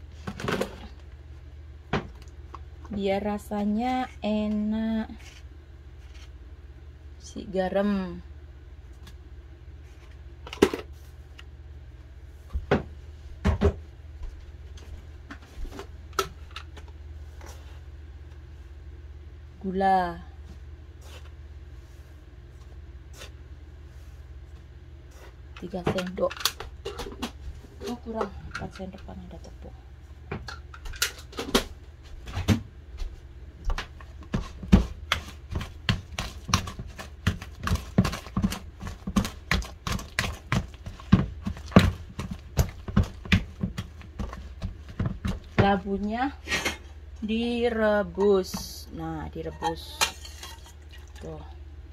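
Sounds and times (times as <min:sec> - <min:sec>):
steady low hum: 0:00.0 - 0:51.9
dough knocking against plastic bowl: 0:33.7 - 0:45.8.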